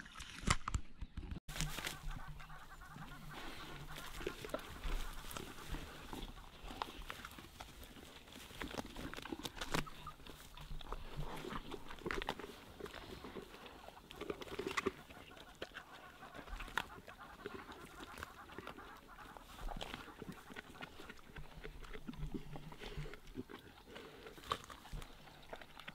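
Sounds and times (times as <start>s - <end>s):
short animal calls: 1.5s - 6.9s, 13.9s - 21.1s
crunching and tearing of meat: 3.9s - 25.9s.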